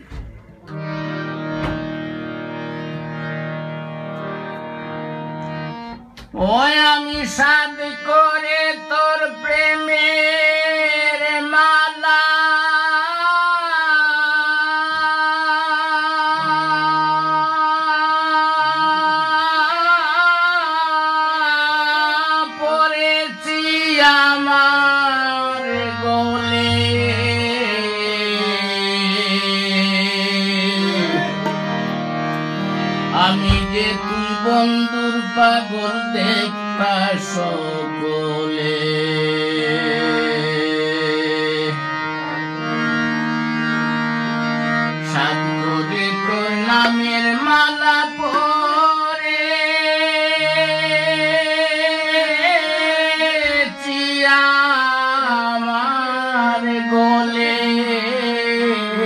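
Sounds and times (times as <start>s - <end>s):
harmonium long held notes: 0.0s - 59.0s
tabla: 6.0s - 37.4s, 45.0s - 59.0s
man singing: 6.3s - 31.8s, 33.0s - 42.4s, 44.9s - 59.0s.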